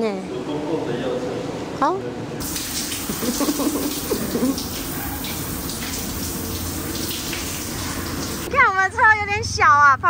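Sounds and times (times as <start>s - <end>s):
shower water running: 2.4s - 8.6s.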